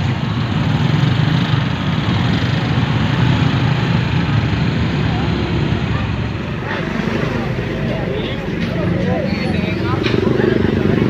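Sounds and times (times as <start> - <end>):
motorbike and scooter engines rumbling: 0.0 - 11.0.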